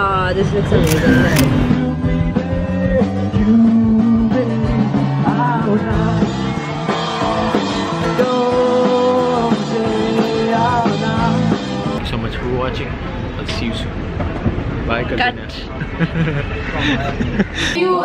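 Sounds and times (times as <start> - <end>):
rock music with guitar: 0.9 - 12.0.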